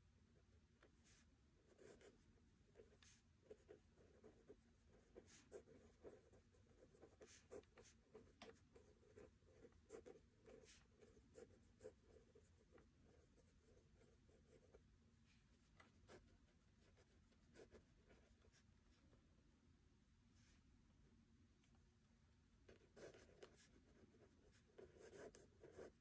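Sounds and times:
pen scratching on paper: 0:01.6 - 0:14.8, 0:16.0 - 0:18.6, 0:22.7 - 0:26.0.

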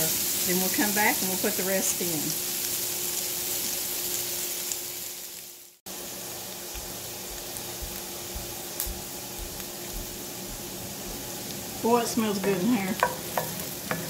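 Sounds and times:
food sizzling in a skillet: 0:00.0 - 0:14.0.

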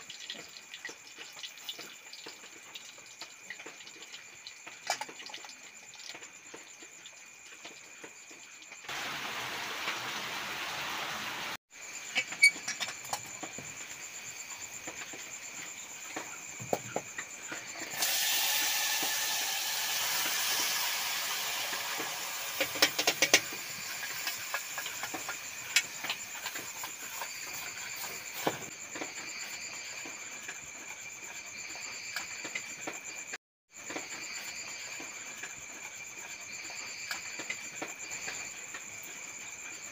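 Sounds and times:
fish sizzling in hot pot: 0:00.0 - 0:07.2, 0:08.6 - 0:30.5
crickets chirping: 0:00.0 - 0:39.9.

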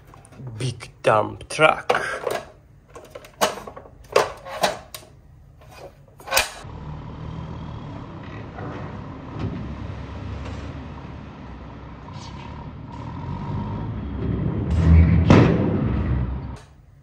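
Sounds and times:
dump truck engine running: 0:06.6 - 0:16.6.

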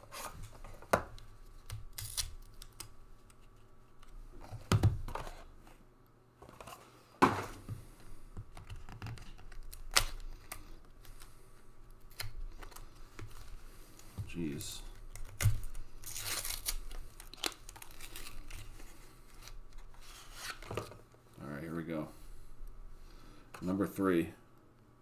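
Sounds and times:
cards and cardboard rustling: 0:12.1 - 0:21.0.

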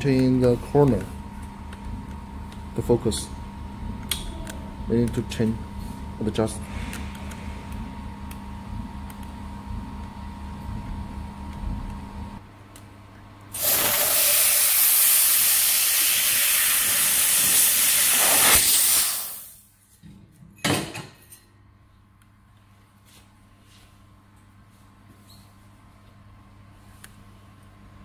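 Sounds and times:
low machine hum: 0:00.0 - 0:14.2
laser cutter gas hiss: 0:13.5 - 0:19.6.

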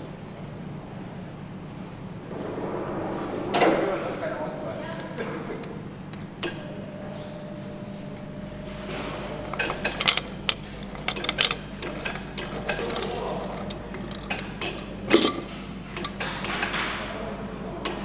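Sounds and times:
low factory hum: 0:00.0 - 0:18.0
metallic clinks and knocks: 0:09.5 - 0:16.2.

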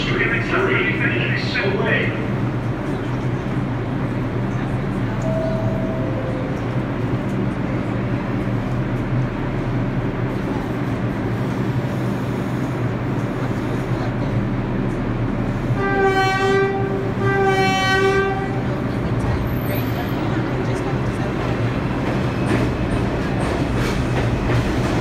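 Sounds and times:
subway train humming: 0:00.0 - 0:25.0
train horn blasts: 0:15.8 - 0:18.7.

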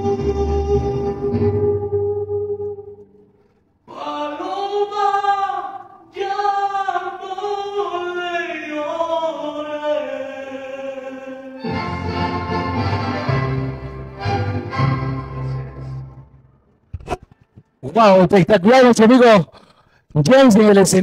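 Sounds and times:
man singing unaccompanied: 0:03.9 - 0:12.3.

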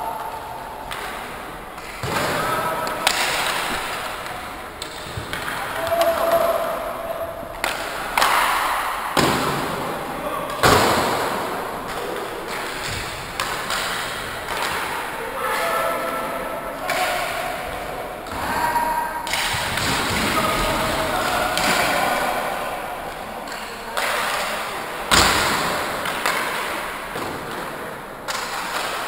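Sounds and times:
players shouting: 0:00.0 - 0:12.8, 0:14.5 - 0:24.8
hockey sticks and puck knocking: 0:00.2 - 0:06.6, 0:07.5 - 0:09.8, 0:10.5 - 0:15.7, 0:23.5 - 0:29.0.

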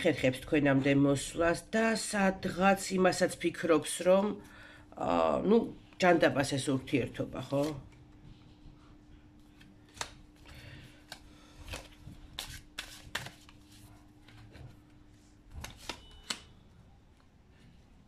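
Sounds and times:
cards tapping and flicking: 0:09.5 - 0:13.6, 0:15.5 - 0:16.5.

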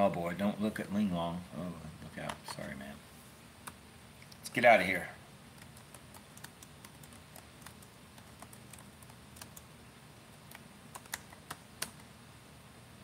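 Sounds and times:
computer keyboard key clicks: 0:10.5 - 0:12.1.

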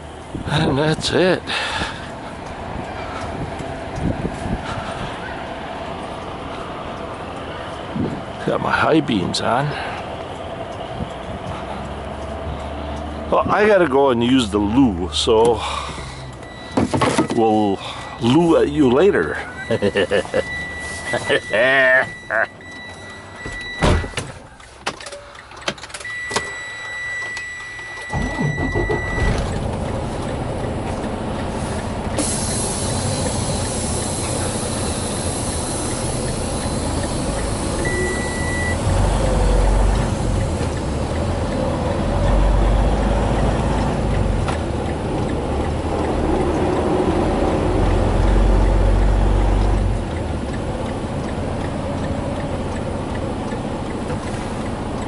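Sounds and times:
truck diesel engine: 0:00.0 - 0:55.0
high warning beep: 0:16.0 - 0:18.6, 0:19.4 - 0:24.2, 0:26.0 - 0:29.6, 0:32.2 - 0:38.9.

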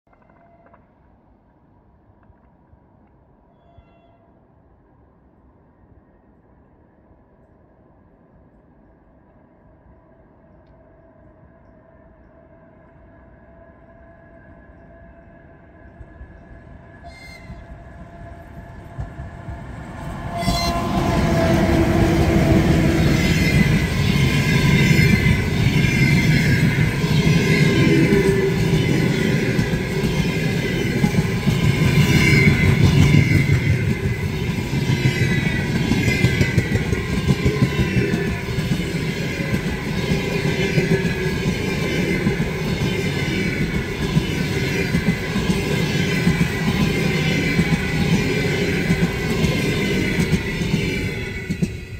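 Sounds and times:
electric locomotive whine: 0:03.4 - 0:51.9
train wheels clattering on track: 0:17.4 - 0:51.9.

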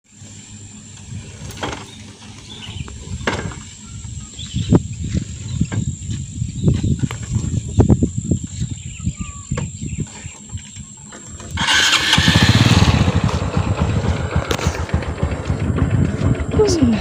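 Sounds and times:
low rumbling: 0:11.4 - 0:17.0
scattered thumps: 0:12.7 - 0:17.0.

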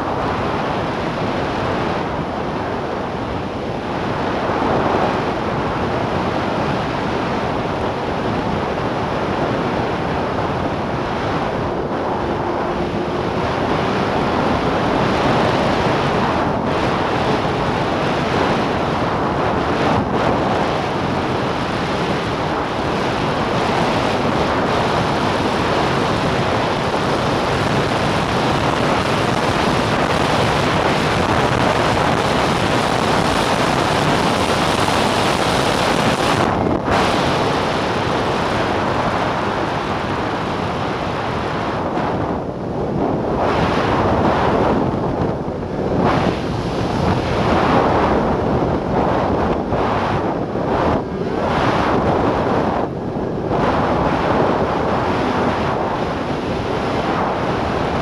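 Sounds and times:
wind rushing on microphone: 0:00.0 - 0:58.0
snowmobile engine and track: 0:04.0 - 0:58.0.

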